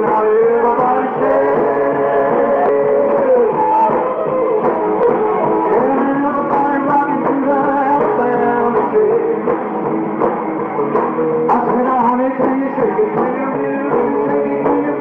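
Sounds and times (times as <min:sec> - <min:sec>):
live rock and roll band playing: 0:00.0 - 0:15.0.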